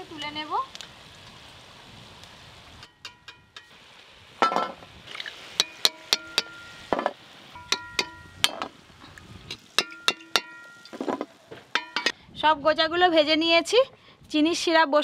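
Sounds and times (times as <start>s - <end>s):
metal spoon tapping steel plate: 5.6s - 8.7s, 9.8s - 11.2s.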